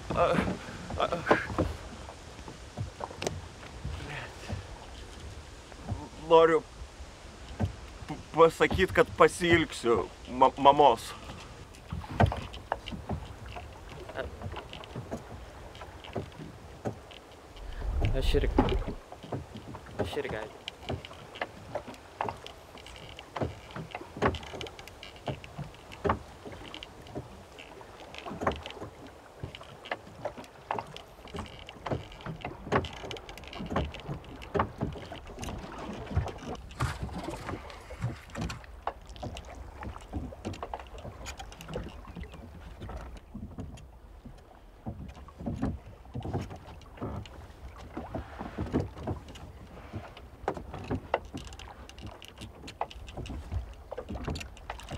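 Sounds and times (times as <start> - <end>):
water slapping against boat hull: 0.0 - 54.9
low wind rumble: 17.4 - 19.2.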